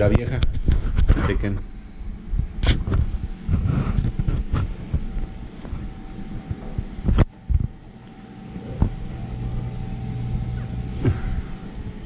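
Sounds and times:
faint steady hum: 0:00.0 - 0:12.0
camera handling rumble: 0:00.1 - 0:01.6, 0:02.6 - 0:07.8.

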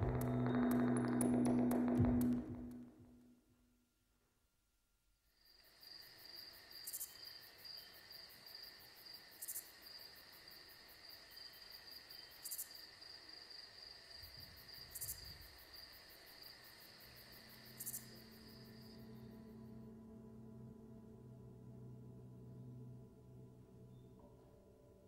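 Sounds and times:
crickets chirping: 0:05.3 - 0:21.1.

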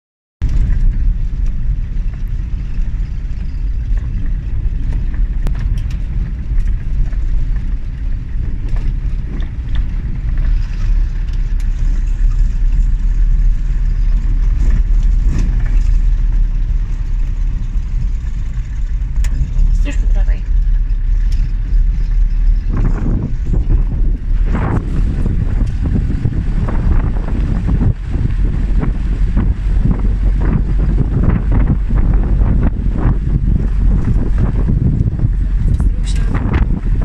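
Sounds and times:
vehicle driving over rough ground: 0:00.4 - 0:37.0.

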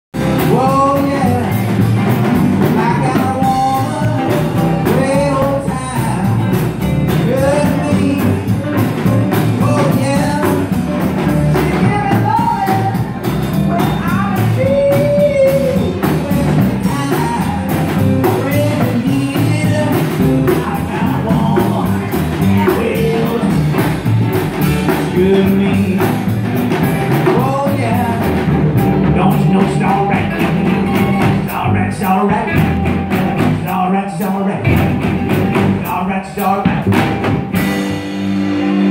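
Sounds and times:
drum kit: 0:00.1 - 0:38.9
upright bass: 0:00.1 - 0:38.9
bending melody line: 0:00.2 - 0:33.7
guitars: 0:00.2 - 0:38.9.

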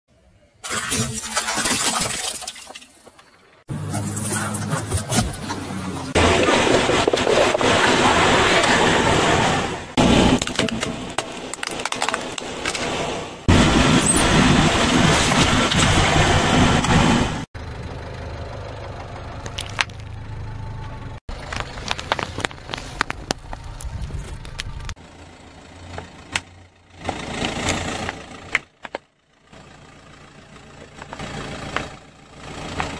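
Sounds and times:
car engine running low: 0:03.6 - 0:32.9
crunching and sharp cracks: 0:10.3 - 0:12.9, 0:21.3 - 0:25.0.

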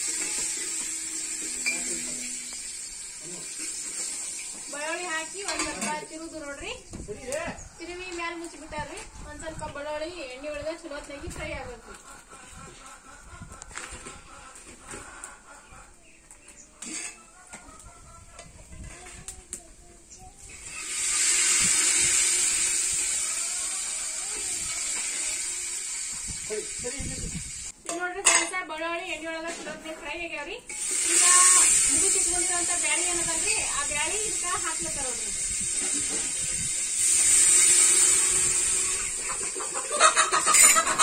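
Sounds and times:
liquid poured into pot: 0:00.0 - 0:04.7
food sizzling over a fire: 0:00.0 - 0:11.5, 0:18.6 - 0:27.8, 0:30.0 - 0:41.0.

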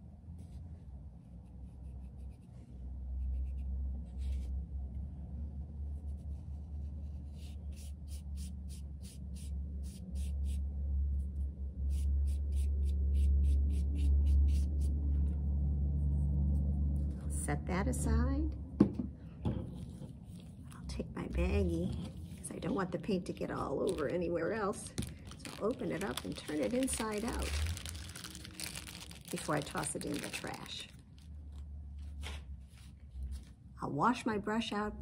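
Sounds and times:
low rumble: 0:10.5 - 0:32.1
sponge brush dabbing paint: 0:19.7 - 0:22.9.

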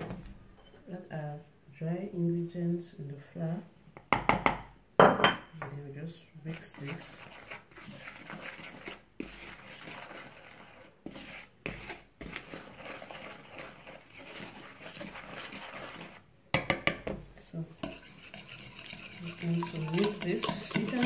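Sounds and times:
whisk swishing flour in bowl: 0:06.4 - 0:16.3, 0:17.5 - 0:21.0.

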